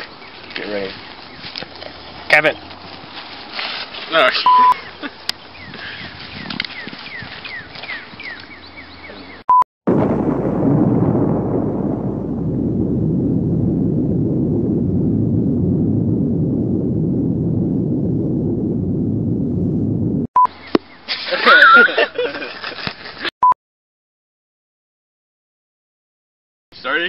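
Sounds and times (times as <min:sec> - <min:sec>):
short beep: 0:04.4 - 0:04.8
explosion with deep rumble: 0:09.9 - 0:20.3.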